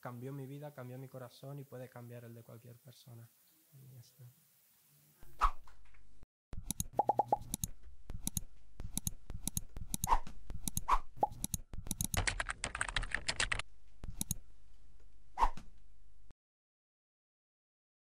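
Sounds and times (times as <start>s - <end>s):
mouse clicks: 6.6s - 12.2s, 14.1s - 14.4s
keyboard typing: 6.6s - 14.4s.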